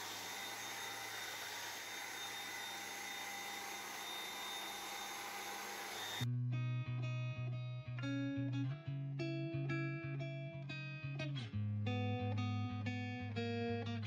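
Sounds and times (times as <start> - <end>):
vacuum cleaner running on fabric: 0.0 - 6.3.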